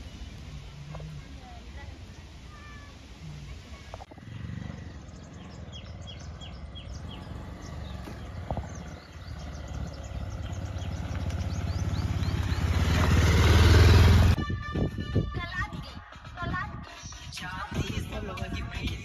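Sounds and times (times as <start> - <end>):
small birds chirping: 0.0 - 14.0
motorcycle engine running: 4.1 - 14.4.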